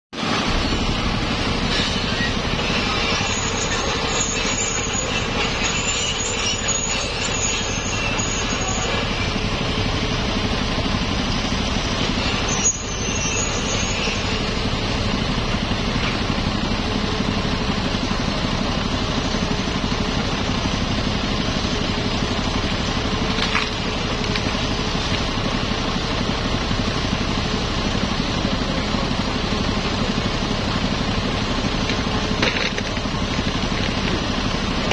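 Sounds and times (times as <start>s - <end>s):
excavator diesel engine under load: 0.2s - 34.9s.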